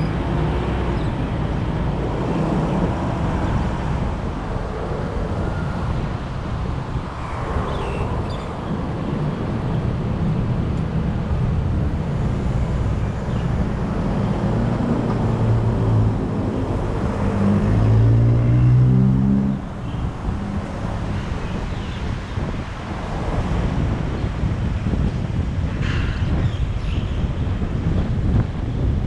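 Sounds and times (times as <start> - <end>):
road traffic: 0.0 - 29.0
vehicle engine revving: 14.2 - 19.7.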